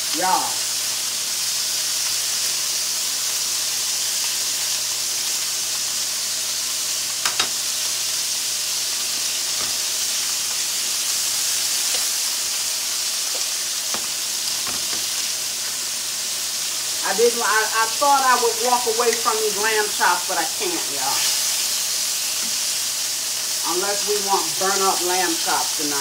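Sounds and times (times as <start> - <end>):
meat sizzling in skillets: 0.0 - 26.0
clicks of chops turned in pan: 7.2 - 7.6, 9.1 - 10.6, 11.4 - 15.8, 22.3 - 22.7.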